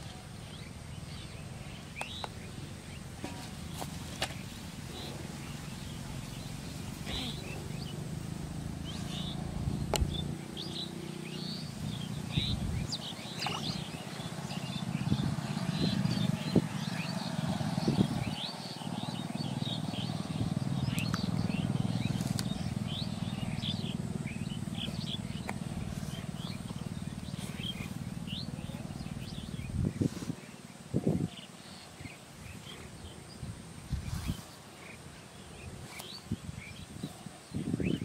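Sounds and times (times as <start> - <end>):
steady low rumble: 0.0 - 10.8, 11.4 - 18.5, 19.2 - 30.0
small birds chirping: 0.0 - 38.0.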